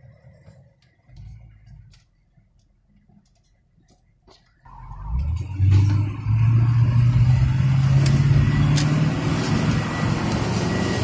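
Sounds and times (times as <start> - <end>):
vehicle engine accelerating: 4.7 - 11.0.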